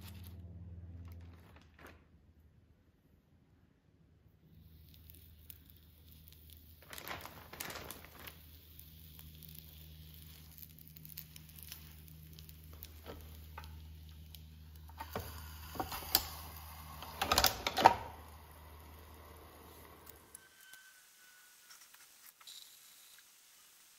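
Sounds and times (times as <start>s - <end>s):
low steady hum: 0.0s - 21.7s.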